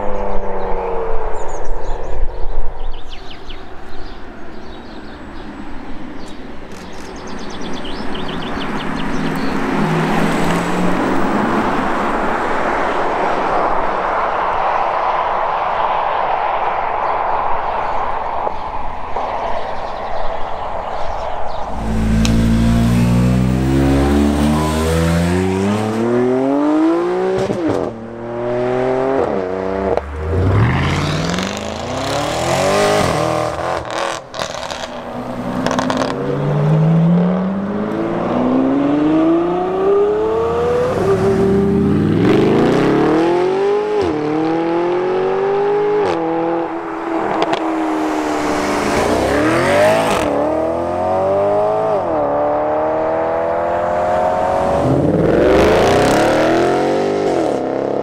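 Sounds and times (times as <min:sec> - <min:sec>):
performance cars accelerating: 0:07.4 - 0:16.6, 0:21.2 - 0:58.0
sports car accelerating with upshifts: 0:21.6 - 0:58.0.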